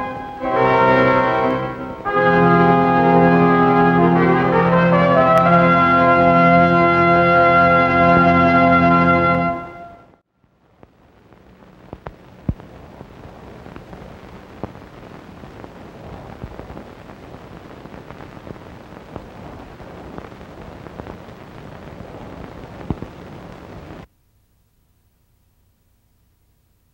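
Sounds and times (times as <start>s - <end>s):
crackling hiss with pops: 0.0s - 6.0s, 10.1s - 26.9s.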